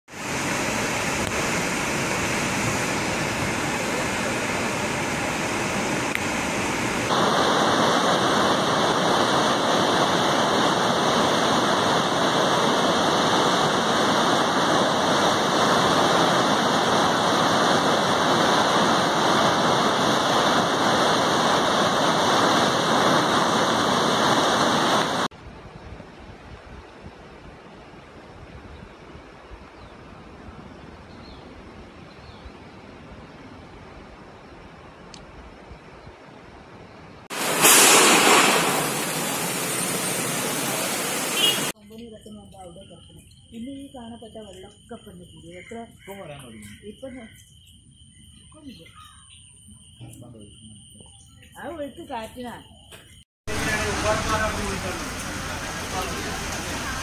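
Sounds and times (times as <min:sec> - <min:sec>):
floodwater rushing in river: 0:00.1 - 0:25.3, 0:37.2 - 0:41.8, 0:53.5 - 0:57.0.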